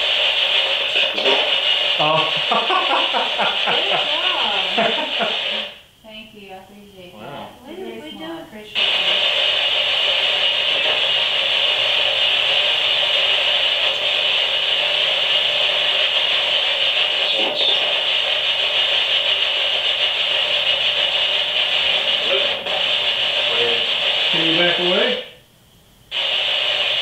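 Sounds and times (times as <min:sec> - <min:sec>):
radio static hiss: 0:00.0 - 0:27.0.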